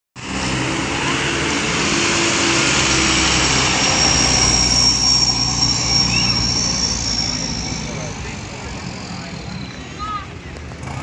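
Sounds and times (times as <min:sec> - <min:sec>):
diesel truck engines running: 0:00.2 - 0:11.0
thin high whine: 0:02.0 - 0:10.3.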